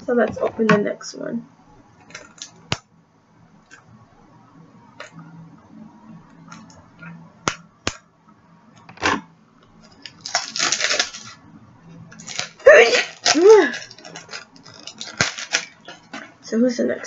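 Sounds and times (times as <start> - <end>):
packaging rustle: 9.8 - 11.4, 12.1 - 16.4.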